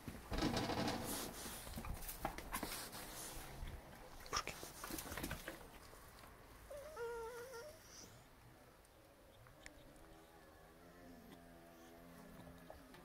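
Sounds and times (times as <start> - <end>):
dogs' paws clicking and scuffing: 0.0 - 6.4
dog whining: 6.7 - 8.2.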